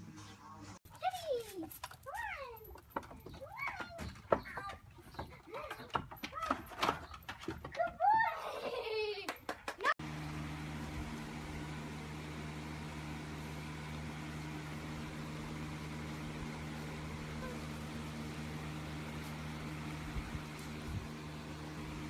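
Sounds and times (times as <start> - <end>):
low machine hum: 10.0 - 22.0.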